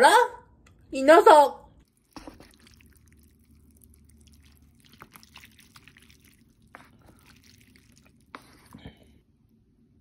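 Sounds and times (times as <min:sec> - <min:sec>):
chopsticks moving through wet food: 0:01.8 - 0:09.3.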